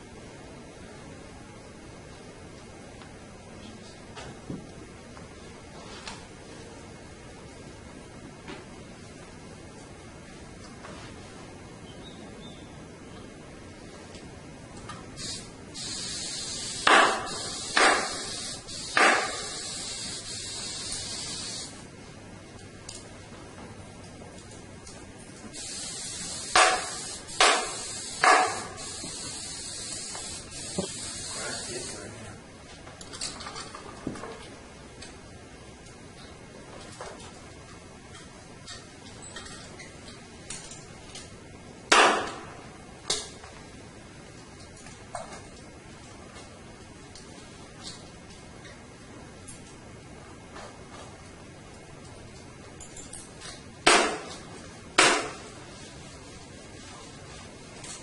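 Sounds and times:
steady high hiss: 4.8 - 23.4, 24.3 - 33.8.

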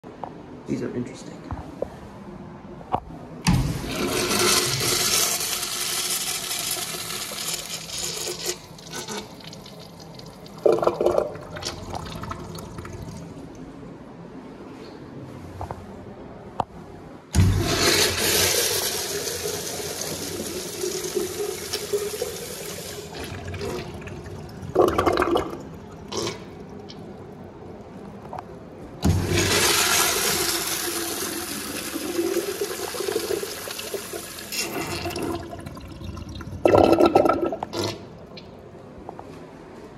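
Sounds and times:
urinal flush water rushing: 3.5 - 13.4, 17.4 - 26.8, 29.0 - 37.7
loud drain gurgle: 3.5 - 13.5, 17.3 - 27.7, 29.0 - 38.2.

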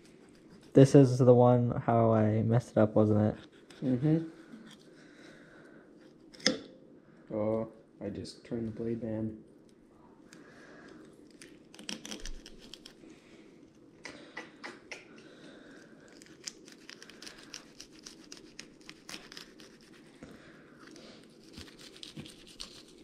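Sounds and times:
knife scraping fish bones: 11.3 - 13.0.

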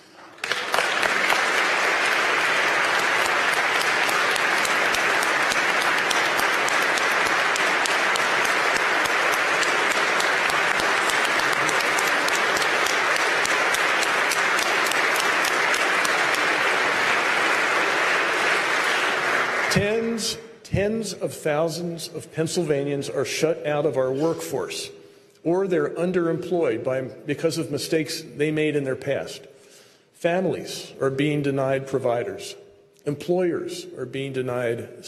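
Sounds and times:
audience applauding: 0.0 - 20.2.

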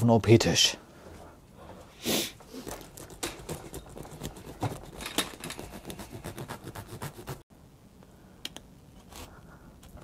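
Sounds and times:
knife sawing bread crust: 5.7 - 7.4.

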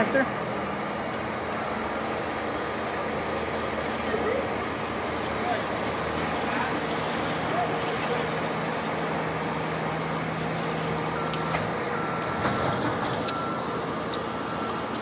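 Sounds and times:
crane engine running: 0.0 - 15.0
electronic warning beeps: 7.0 - 15.0.

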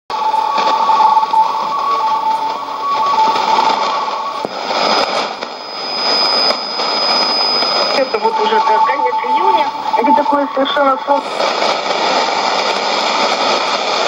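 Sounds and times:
faint broken radio tones: 0.1 - 14.0
radio hiss and static: 0.1 - 14.0
steady high radio whistle: 0.1 - 14.0.

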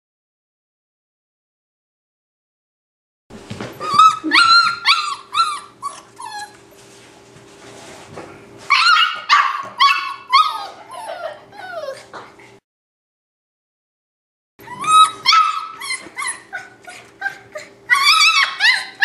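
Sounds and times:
puppy yelping and whining: 3.6 - 6.7, 8.7 - 12.2, 14.6 - 19.0.

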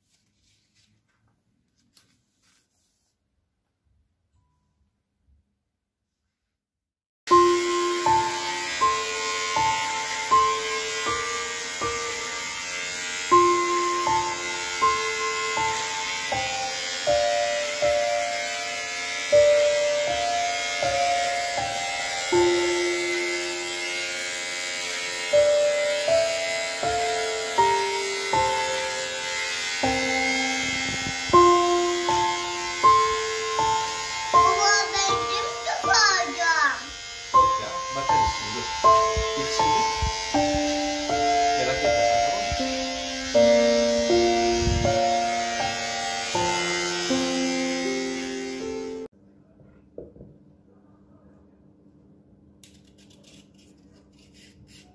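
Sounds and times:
electric hair clippers buzzing: 7.3 - 49.1, 52.6 - 54.9
slow instrumental music: 7.3 - 49.1.

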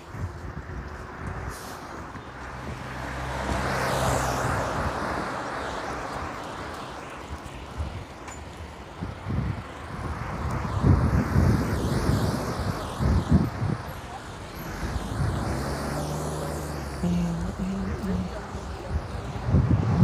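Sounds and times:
traffic passing close by: 0.0 - 20.0
wind buffeting microphone: 0.0 - 20.0
truck driving past: 14.4 - 17.1.

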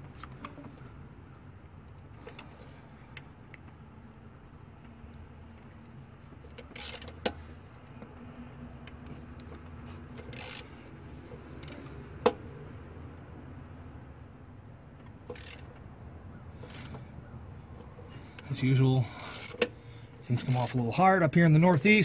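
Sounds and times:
ratchet clicking: 6.5 - 7.4, 10.1 - 10.8, 11.6 - 11.9, 15.3 - 15.8, 16.6 - 17.0, 19.1 - 19.8, 20.4 - 20.8.

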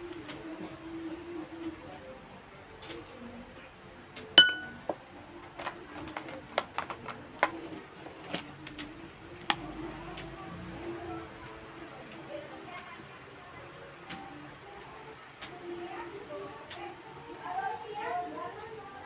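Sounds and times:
sharp ringing clink: 4.4 - 4.8.

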